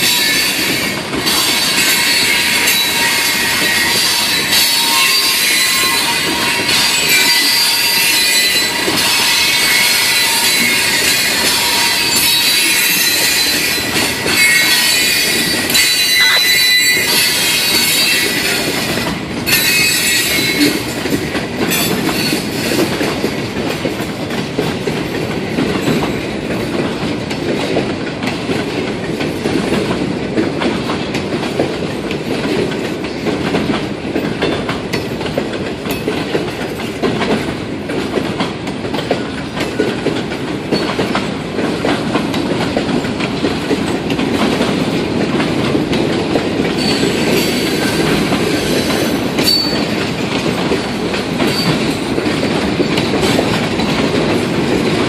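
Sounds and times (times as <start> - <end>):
train wheel squeal: 0.0 - 23.4, 40.7 - 41.3, 46.6 - 55.0
wheels rumbling on rails: 0.0 - 55.0.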